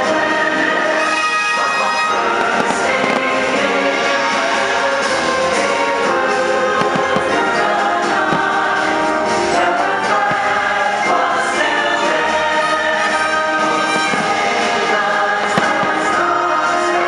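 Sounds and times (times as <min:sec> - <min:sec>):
choir singing with orchestra: 0:00.0 - 0:17.0
faint firework thuds: 0:15.4 - 0:16.2.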